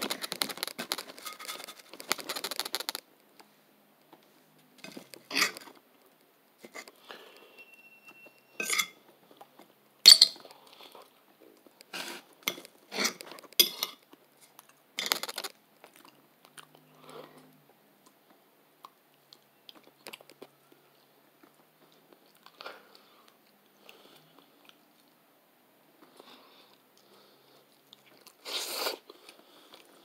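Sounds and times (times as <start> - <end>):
person chewing food: 10.4 - 25.2, 26.0 - 30.0.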